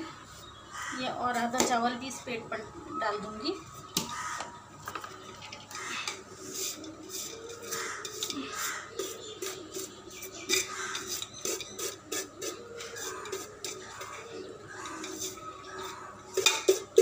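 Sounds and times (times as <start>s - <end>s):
rice scraped from steel pot: 5.7s - 17.0s
metal pots clinking: 10.5s - 17.0s.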